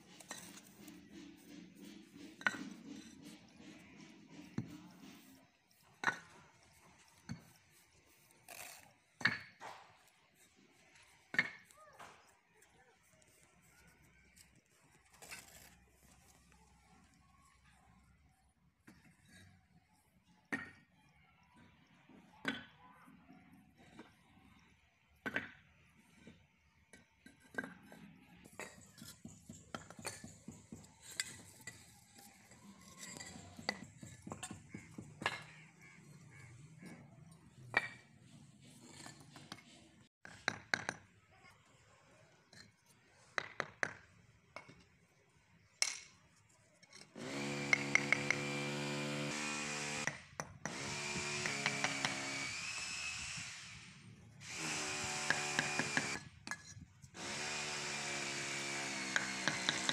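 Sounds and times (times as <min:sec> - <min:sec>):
hammer tapping bricks: 0:00.1 - 0:07.8, 0:26.9 - 0:35.7, 0:39.0 - 0:41.1, 0:42.5 - 0:44.9, 0:47.5 - 0:48.8, 0:49.8 - 0:52.2, 0:55.1 - 0:56.8, 0:59.0 - 0:59.9
electric power tool motor: 0:47.2 - 0:50.1, 0:50.7 - 0:56.2, 0:57.2 - 0:59.9.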